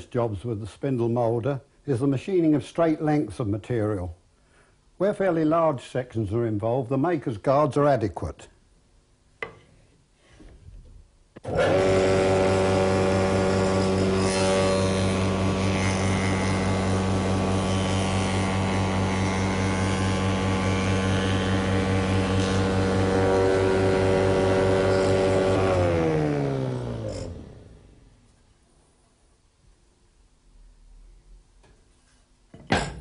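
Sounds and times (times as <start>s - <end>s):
wood shaper motor hum: 11.4s - 28.1s.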